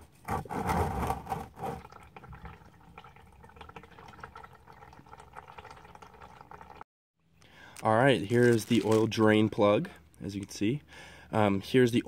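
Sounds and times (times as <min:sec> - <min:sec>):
oil pouring into plastic pan: 0:01.3 - 0:06.8.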